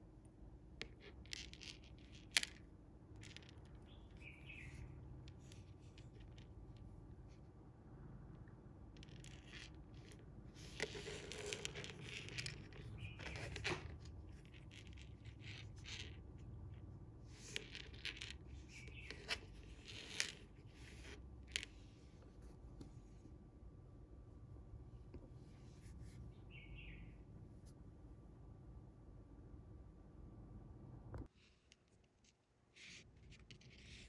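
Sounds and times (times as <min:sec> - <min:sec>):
fingers rustling fishing line: 0:00.8 - 0:07.3, 0:09.0 - 0:16.2, 0:17.4 - 0:22.8.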